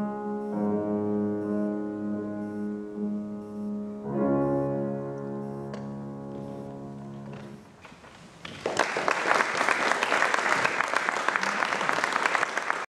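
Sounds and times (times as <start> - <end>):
piano chord: 0.0 - 7.6
audience applause: 8.4 - 12.9.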